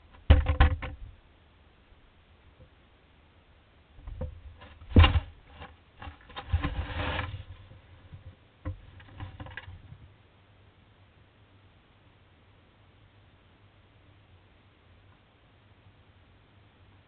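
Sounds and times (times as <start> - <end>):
hard knocks on wooden box: 4.1 - 5.4.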